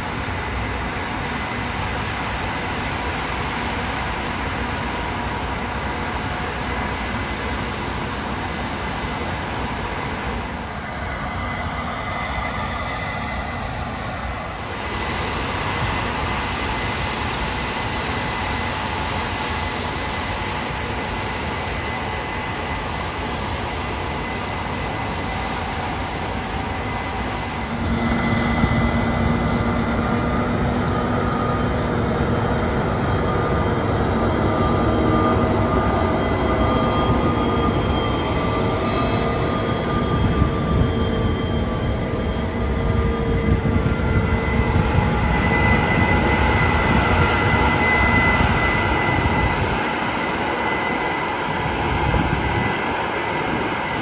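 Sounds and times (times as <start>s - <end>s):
heavy machinery drone: 0.0s - 54.0s
machine whining tones: 18.2s - 54.0s.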